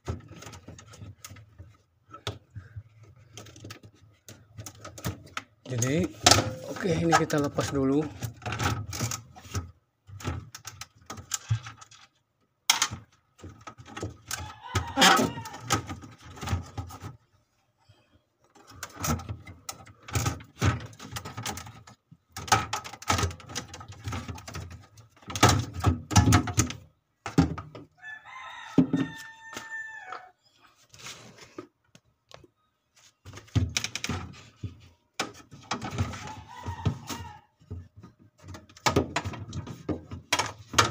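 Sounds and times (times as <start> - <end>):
plastic fridge shelf rattling: 0.0 - 17.2, 18.6 - 27.9, 33.2 - 40.9
rooster crowing: 14.3 - 15.8, 28.0 - 30.4, 36.2 - 37.5.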